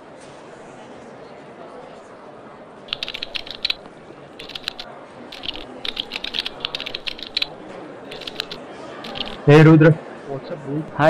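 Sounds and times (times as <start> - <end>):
keyboard key clicks: 2.9 - 7.5, 8.1 - 9.4.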